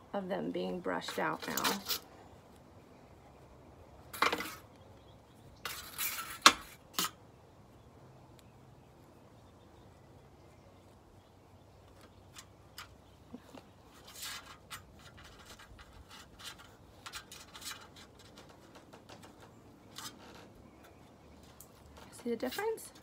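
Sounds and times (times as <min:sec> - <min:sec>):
metal comb strokes through fur: 0:00.6 - 0:02.1, 0:05.6 - 0:07.2, 0:13.8 - 0:18.8, 0:22.0 - 0:23.0.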